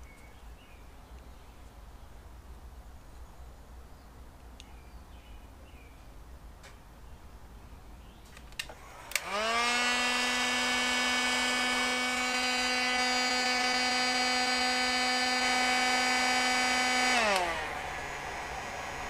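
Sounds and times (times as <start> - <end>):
heat gun fan whine and hum: 8.5 - 19.0
heat gun switch click: 8.6 - 9.3.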